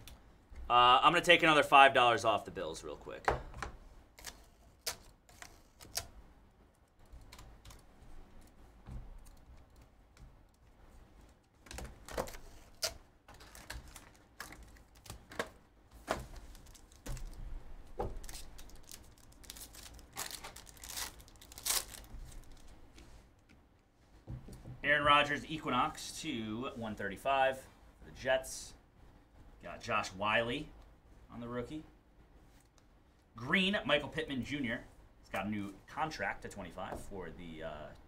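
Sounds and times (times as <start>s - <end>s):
handling cardboard box and packs: 12.0s - 22.7s.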